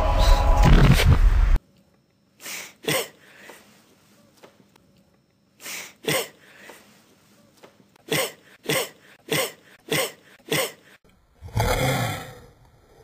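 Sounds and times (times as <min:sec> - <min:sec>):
man coughing: 0:02.8 - 0:03.2, 0:05.9 - 0:06.4, 0:08.0 - 0:11.0.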